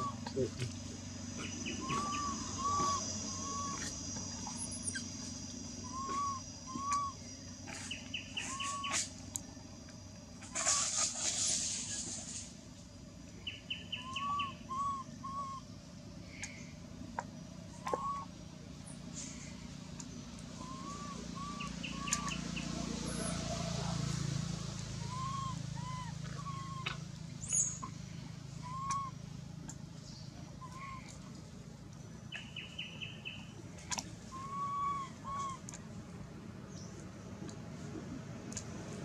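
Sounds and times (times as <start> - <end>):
birds whistling: 0.0 - 0.3, 1.3 - 9.1, 13.4 - 16.8, 17.6 - 23.9, 24.8 - 29.3, 30.0 - 31.2, 32.3 - 35.8
bird chirping trills: 0.0 - 9.8, 13.2 - 16.8, 17.4 - 23.9, 24.8 - 31.3, 32.0 - 35.9
low background rumble: 0.0 - 39.0.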